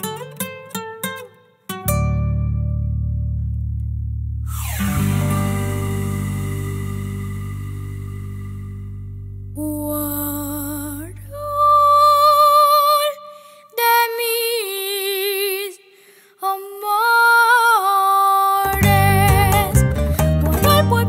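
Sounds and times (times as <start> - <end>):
low drone: 4.5 - 11.2
band with strummed strings: 4.6 - 9.4, 18.7 - 21.0
woman singing with vibrato: 9.6 - 21.0.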